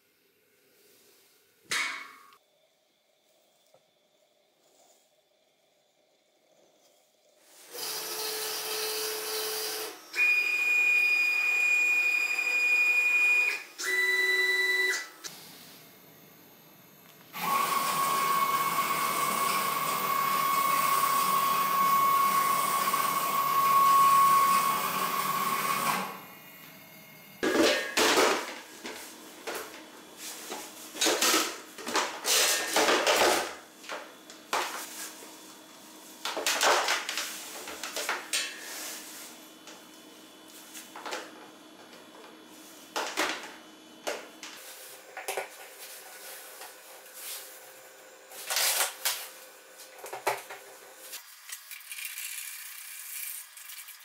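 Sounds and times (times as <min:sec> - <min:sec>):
router motors whining: 0:07.7 - 0:12.5, 0:17.3 - 0:26.8.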